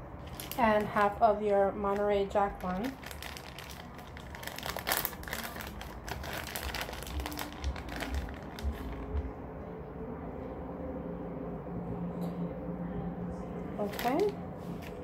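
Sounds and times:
plastic packet crinkling: 0.2 - 1.2, 1.9 - 9.2, 13.8 - 15.0.

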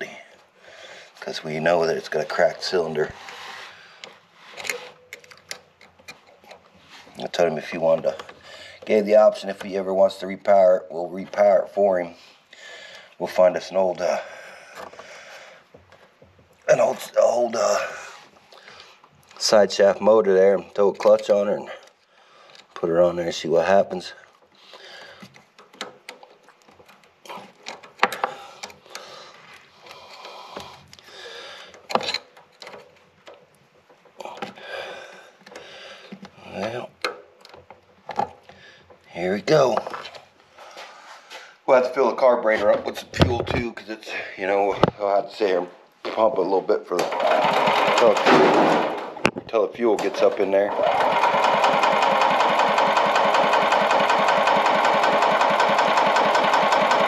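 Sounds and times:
handling noises of parts and tools: 0.0 - 53.5
engine starter cranking: 47.0 - 49.3, 50.0 - 57.0.

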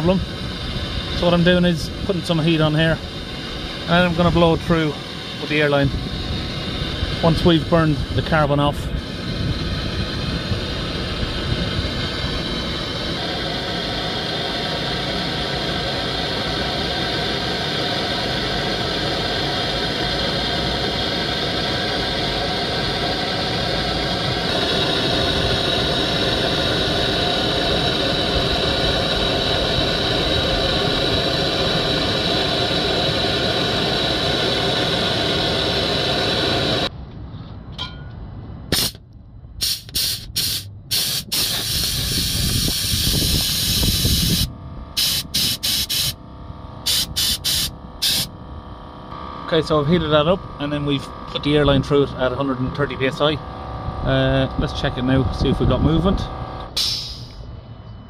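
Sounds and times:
blowtorch flame hissing: 0.0 - 36.9, 38.7 - 39.0, 39.6 - 46.2, 46.8 - 48.4.

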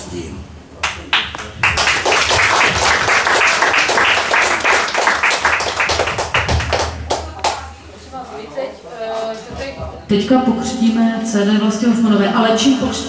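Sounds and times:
audience applauding: 0.8 - 7.6.

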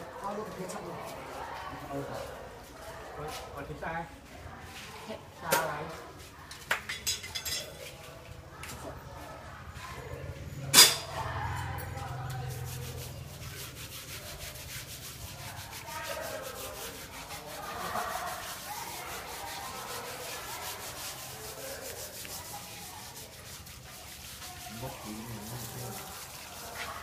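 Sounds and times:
knives scraping wet hide: 12.4 - 27.0.

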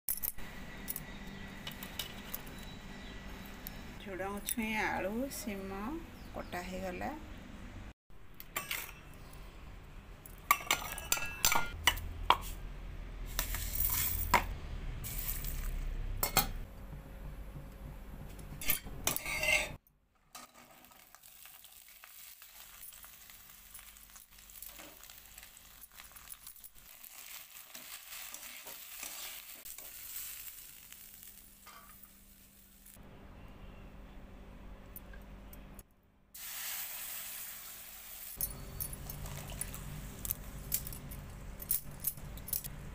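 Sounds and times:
steel bowls clinking: 10.3 - 12.0
spatula scraping a pan: 18.7 - 19.8
vegetables sizzling in a pan: 20.4 - 33.0, 36.4 - 38.4.

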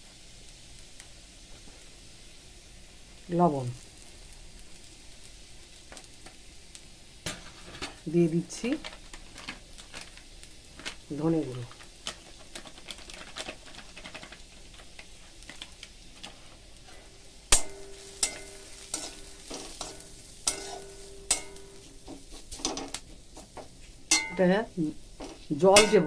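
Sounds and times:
onions sizzling in a pan: 0.0 - 26.0
metal spatula scraping a pan: 16.3 - 23.5, 25.2 - 26.0.

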